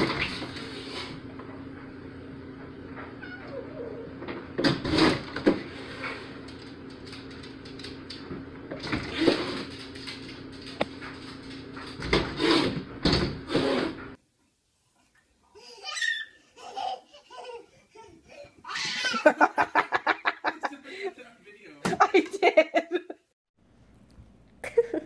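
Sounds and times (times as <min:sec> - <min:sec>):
glass door thumping and rattling: 0:11.8 - 0:13.5.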